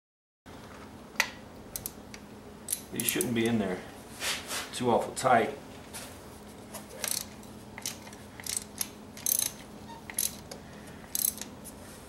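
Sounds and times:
ratchet clicking: 0:01.8 - 0:02.0, 0:02.7 - 0:03.3, 0:07.0 - 0:11.5.

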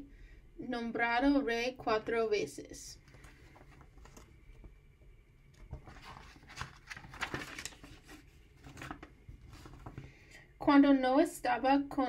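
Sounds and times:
book pages rustling: 0:03.0 - 0:04.8, 0:05.5 - 0:10.3
soft paper crackles: 0:03.0 - 0:04.8, 0:05.5 - 0:10.5.

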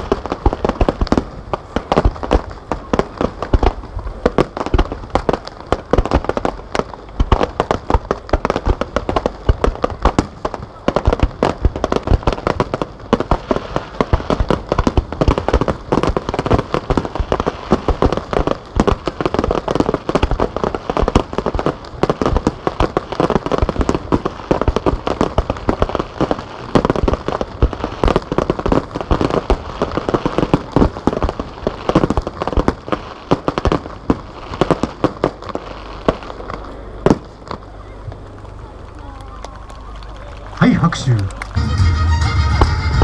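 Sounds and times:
fireworks bursting: 0:00.0 - 0:43.0.

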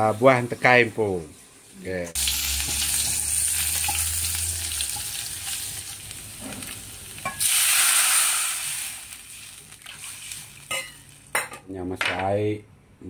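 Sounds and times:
food sizzling in hot oil: 0:00.0 - 0:11.5
water hitting hot oil: 0:02.2 - 0:11.5.

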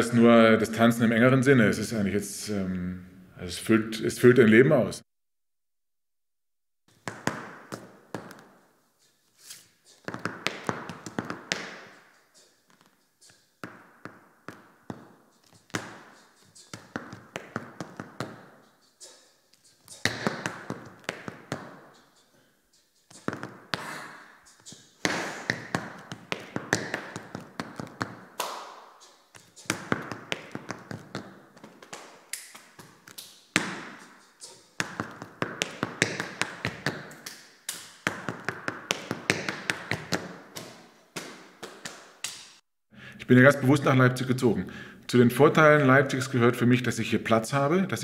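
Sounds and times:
tap shoes clicking on floor: 0:06.9 - 0:08.6, 0:10.0 - 0:11.9, 0:12.7 - 0:18.5, 0:19.8 - 0:21.9, 0:23.1 - 0:23.9, 0:24.6 - 0:42.4.

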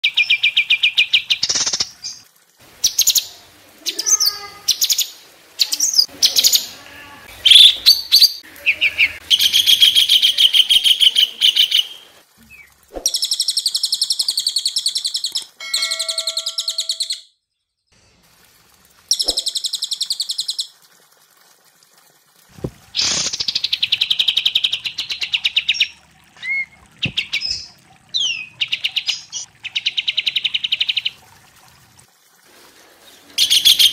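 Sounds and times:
whistled bird notes: 0:15.2 - 0:17.3.

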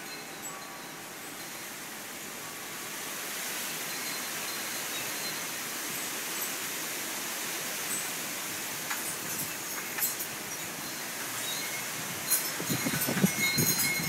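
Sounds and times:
strong wind blowing: 0:11.8 - 0:14.0.

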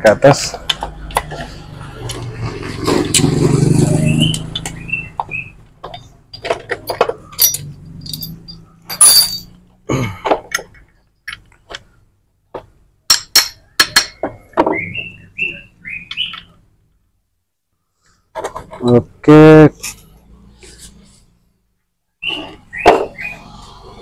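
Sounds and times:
metal gears clinking and knocking: 0:05.9 - 0:09.6.

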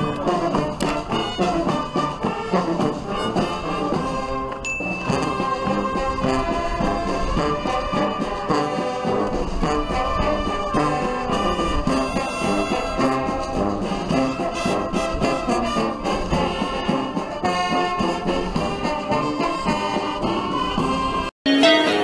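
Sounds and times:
brass band playing a march: 0:00.0 - 0:22.0
music: 0:00.0 - 0:22.0.

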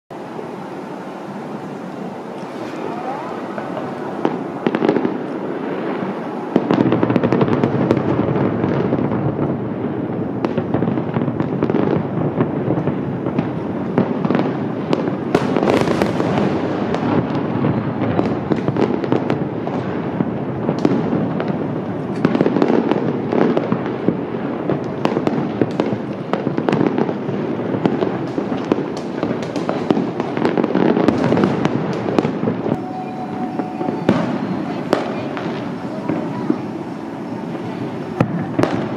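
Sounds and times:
fireworks booming: 0:00.1 - 0:38.9
fireworks crackling pops: 0:00.2 - 0:38.9.

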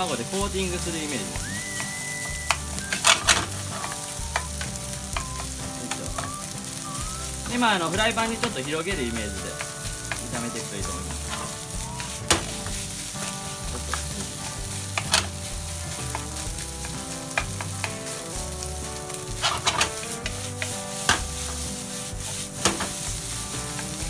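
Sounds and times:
rice and egg sizzling in a pan: 0:00.0 - 0:24.0
wooden spatula scraping a pan: 0:00.0 - 0:24.0.

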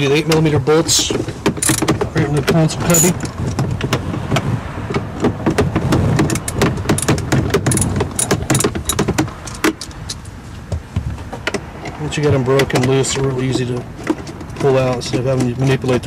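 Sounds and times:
socket ratchet clicking: 0:01.6 - 0:01.9, 0:06.3 - 0:09.7.

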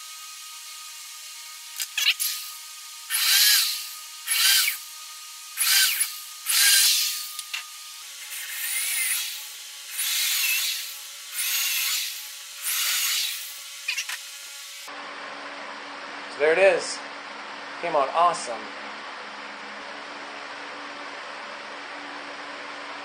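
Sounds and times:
electric drill boring into wood: 0:00.0 - 0:14.9.

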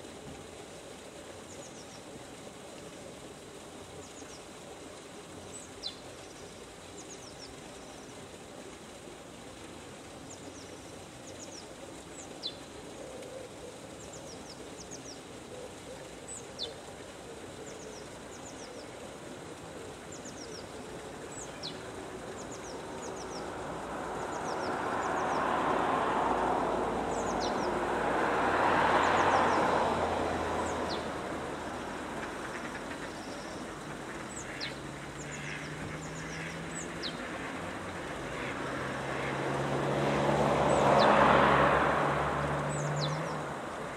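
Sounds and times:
vehicle engine hum: 0:15.2 - 0:43.9
birds chirping: 0:19.9 - 0:25.8, 0:27.0 - 0:28.0, 0:28.6 - 0:38.5, 0:42.6 - 0:43.9
passing road traffic: 0:20.9 - 0:43.9.

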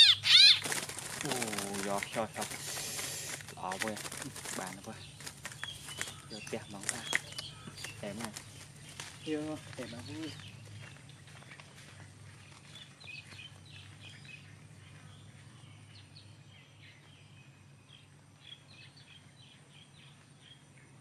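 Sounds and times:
small birds chirping: 0:00.0 - 0:21.0
steady low hum: 0:00.0 - 0:21.0.

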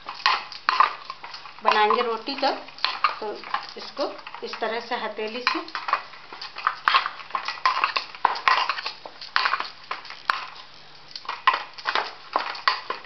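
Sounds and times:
hands kneading dough in metal bowl: 0:00.0 - 0:13.0.

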